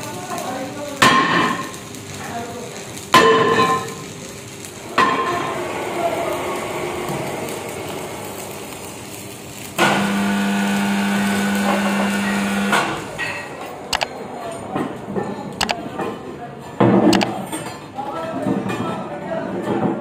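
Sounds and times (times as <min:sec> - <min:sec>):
electric chain hoist humming: 0:05.5 - 0:14.1.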